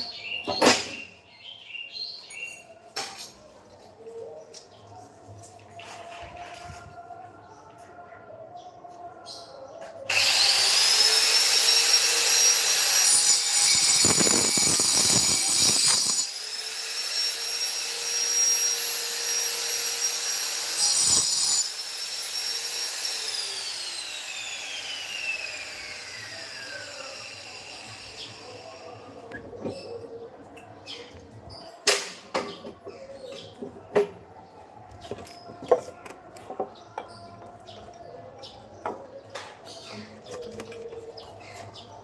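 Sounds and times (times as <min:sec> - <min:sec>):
electric disc cutter whining and cutting: 0:10.1 - 0:28.4.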